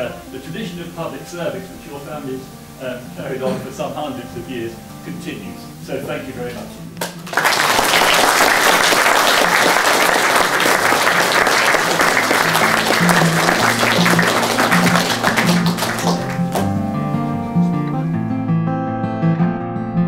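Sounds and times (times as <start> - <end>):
guitar music: 0.0 - 7.3, 8.5 - 20.0
audience applauding: 7.0 - 16.8.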